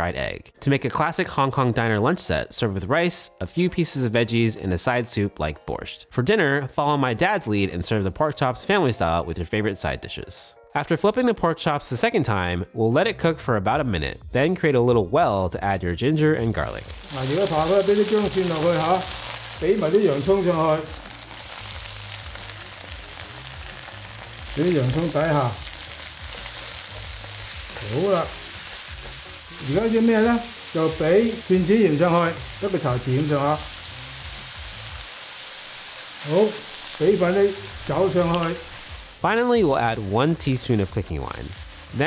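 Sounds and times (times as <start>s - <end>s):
meat sizzling in a frying pan: 16.4s - 42.0s.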